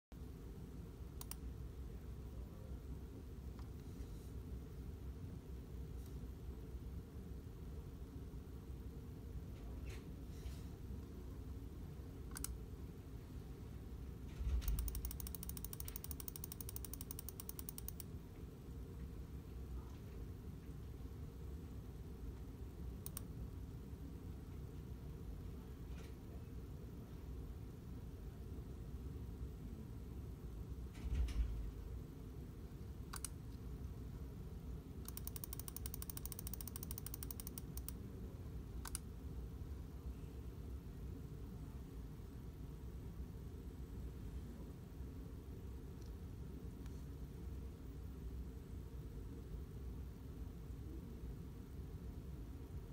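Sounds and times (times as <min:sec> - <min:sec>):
low steady room hum: 0:00.1 - 0:52.9
rapid mechanical clicks: 0:14.3 - 0:18.1, 0:35.0 - 0:38.0.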